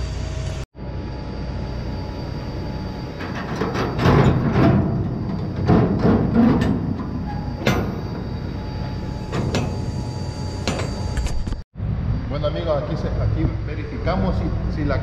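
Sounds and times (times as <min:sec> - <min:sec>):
metal clanks and knocks: 0:03.2 - 0:10.0, 0:10.6 - 0:11.0
low rumble: 0:11.8 - 0:15.0.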